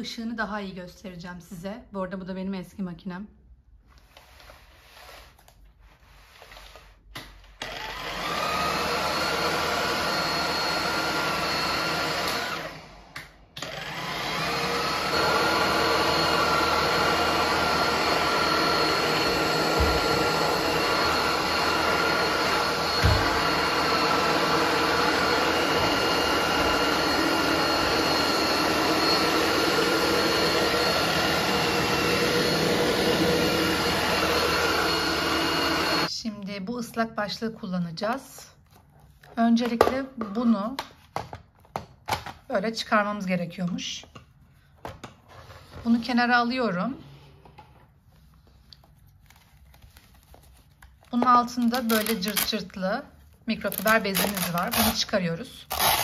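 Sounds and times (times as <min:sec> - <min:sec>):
stick vacuum whining: 0:06.4 - 0:36.1, 0:53.6 - 0:55.1.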